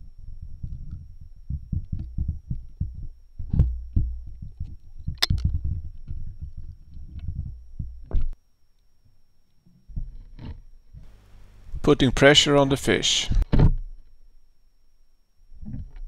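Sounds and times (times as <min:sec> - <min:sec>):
muffled underwater thumping: 0:00.6 - 0:06.6.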